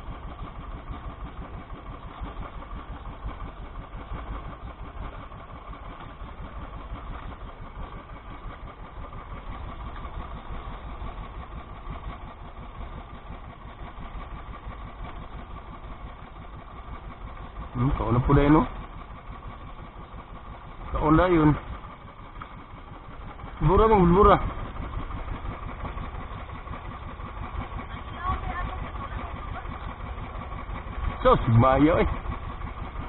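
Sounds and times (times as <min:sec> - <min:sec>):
small boat engine running: 0:00.0 - 0:33.0.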